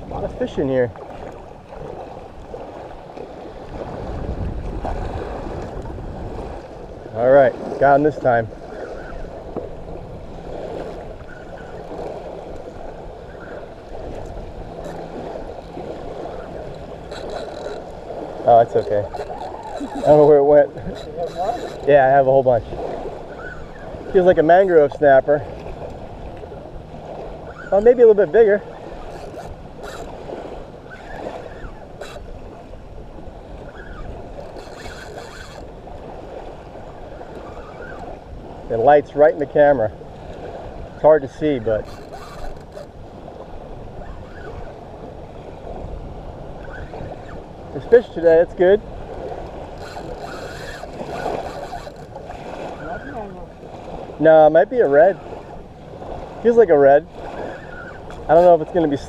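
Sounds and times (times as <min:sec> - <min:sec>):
wind on microphone: 0:00.0 - 0:54.2
surf washing on shore: 0:00.0 - 0:59.0
water washing: 0:10.7 - 0:32.4.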